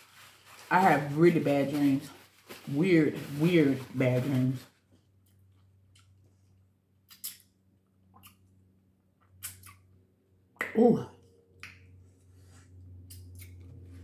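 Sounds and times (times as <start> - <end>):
lip smacks and mouth clicks: 5.2 - 6.2, 7.0 - 8.6, 9.2 - 10.0, 13.0 - 13.6.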